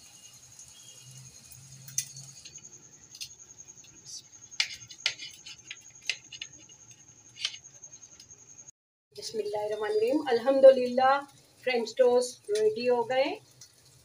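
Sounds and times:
bread frying in oil: 0:00.0 - 0:14.0
knife crunching through toast: 0:04.6 - 0:07.7.

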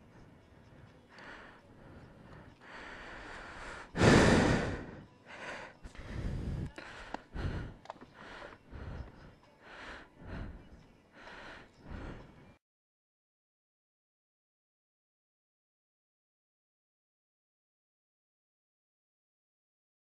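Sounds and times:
person breathing heavily: 0:00.0 - 0:12.6.

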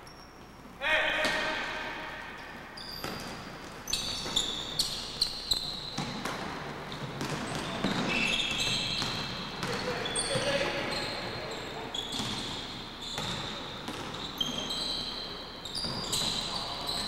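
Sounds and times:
sneakers squeaking on wooden floor: 0:02.3 - 0:17.0
basketball bouncing: 0:02.9 - 0:03.5, 0:06.0 - 0:10.4, 0:13.2 - 0:14.3.

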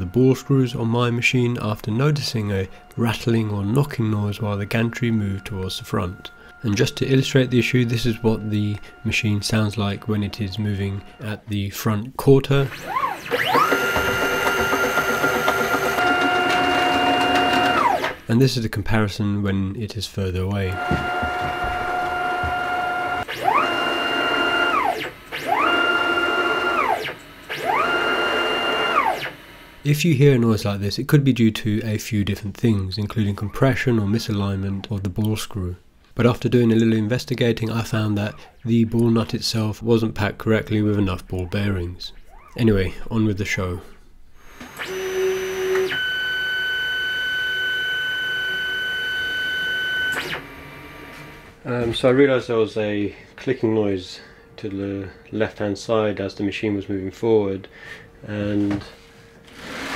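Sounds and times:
stepper motor whine: 0:00.0 - 0:11.4, 0:12.4 - 0:18.3, 0:20.7 - 0:29.9, 0:44.4 - 0:51.6.

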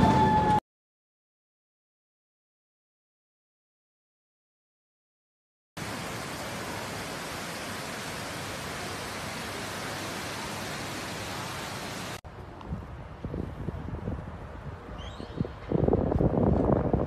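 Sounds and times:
steady hiss: 0:05.8 - 0:12.2.

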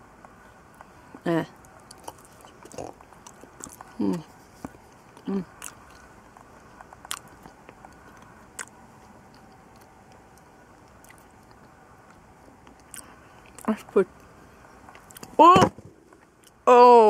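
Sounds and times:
wet mouth clicks from chewing: 0:01.9 - 0:04.0, 0:06.8 - 0:13.7.

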